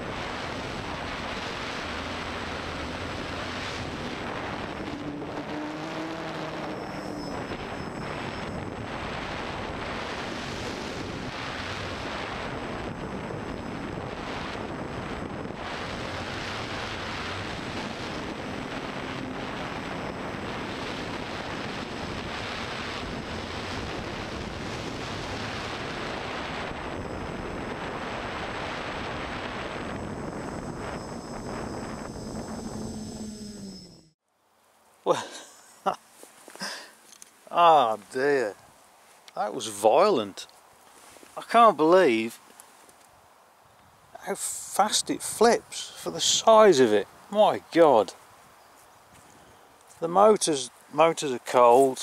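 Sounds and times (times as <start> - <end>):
wind and prop wash rushing: 0.0 - 33.9
drone motor whine: 0.0 - 34.2.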